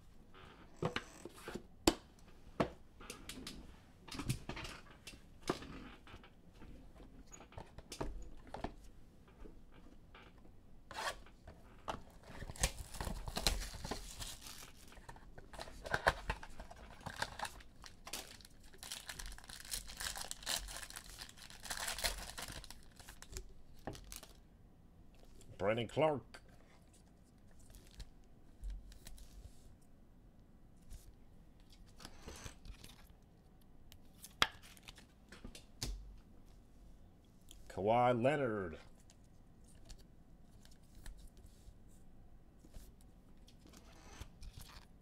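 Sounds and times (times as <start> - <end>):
foil pack crinkling and tearing: 12.4 - 24.4.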